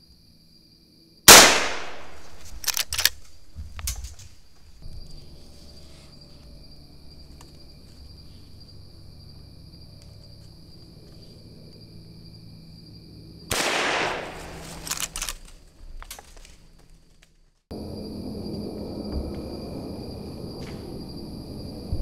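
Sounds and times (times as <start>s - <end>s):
rifle shot: 1.3s - 3.2s, 13.5s - 15.4s
sharp clicks: 1.3s - 4.2s, 13.5s - 16.5s.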